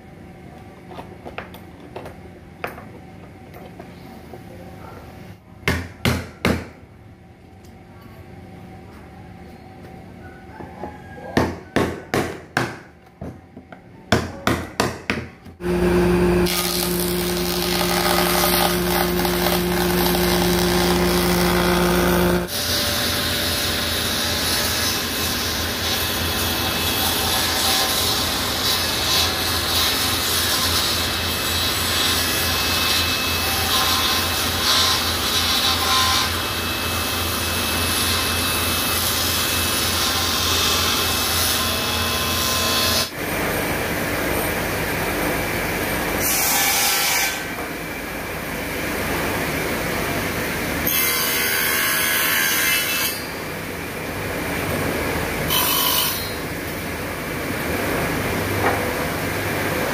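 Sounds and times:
jointer motor humming: 15.6s - 26.9s
table saw cutting wood: 15.6s - 47.7s, 50.8s - 53.4s, 55.4s - 56.5s.

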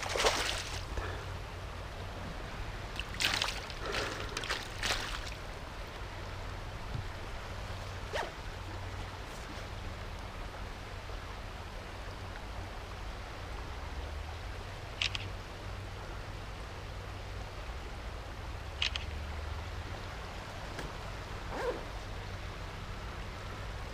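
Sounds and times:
water splashes: 0.0s - 6.3s
river flowing over gravel: 0.0s - 23.9s
sharp click: 15.0s - 15.3s.

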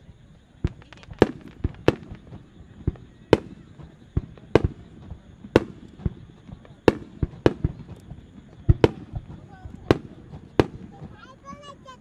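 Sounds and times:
fireworks bangs: 0.0s - 12.0s
small crackles: 0.6s - 11.7s.

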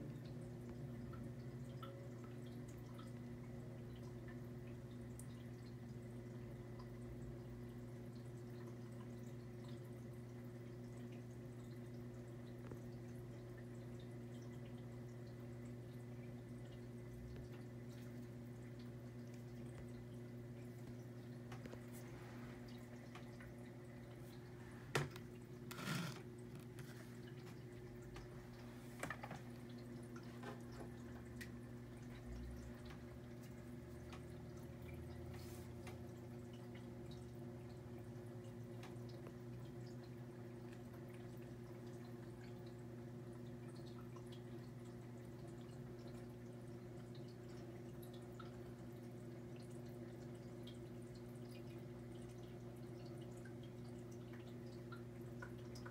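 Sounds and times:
aquarium filter humming: 0.0s - 55.9s
water trickling and dripping: 0.0s - 55.9s.

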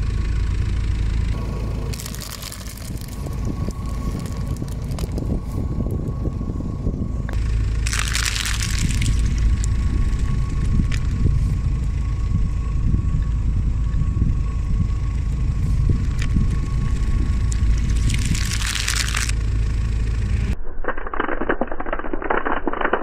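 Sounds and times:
car engine and tyre rumbling: 0.0s - 20.6s
sharp clicks: 20.8s - 23.0s.

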